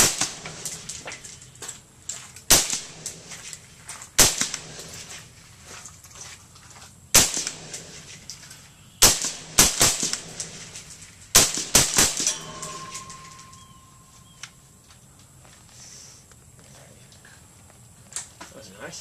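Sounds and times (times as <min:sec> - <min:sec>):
suppressed rifle shots: 0:02.5 - 0:03.1, 0:04.2 - 0:04.9, 0:07.2 - 0:07.8, 0:09.0 - 0:10.7, 0:11.3 - 0:12.4.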